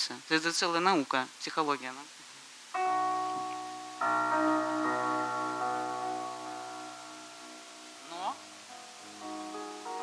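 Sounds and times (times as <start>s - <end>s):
piano chords: 2.8s - 10.0s.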